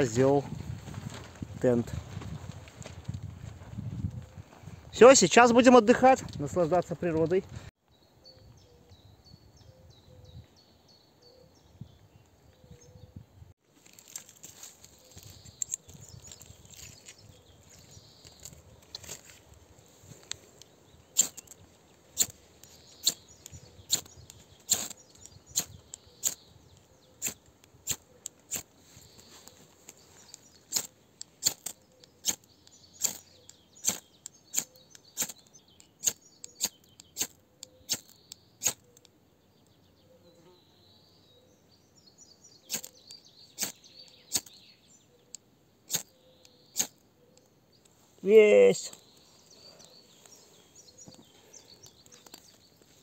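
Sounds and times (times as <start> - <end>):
faint chirping: 14.6 - 53.0.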